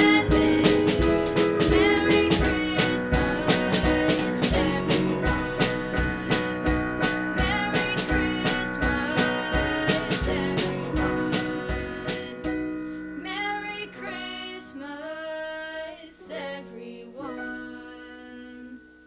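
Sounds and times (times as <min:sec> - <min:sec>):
drum hits: 0:00.0 - 0:12.6
pop band with electric guitars: 0:00.0 - 0:13.1
sliding sung notes: 0:00.0 - 0:18.8.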